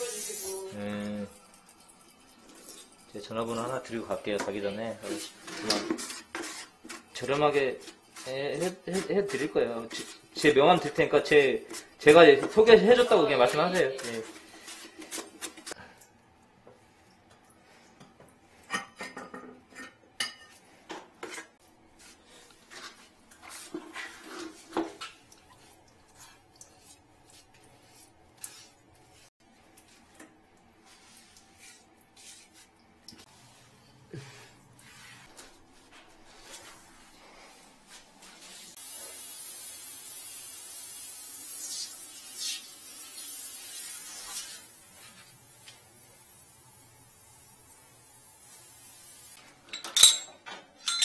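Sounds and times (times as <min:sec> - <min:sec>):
shower head spraying water: 0:00.0 - 0:00.7, 0:38.8 - 0:49.4
hands smoothing wet grout: 0:03.5 - 0:15.8, 0:21.2 - 0:30.2, 0:30.8 - 0:35.6
scraping and rubbing: 0:05.0 - 0:10.2, 0:21.2 - 0:25.0, 0:30.8 - 0:33.7.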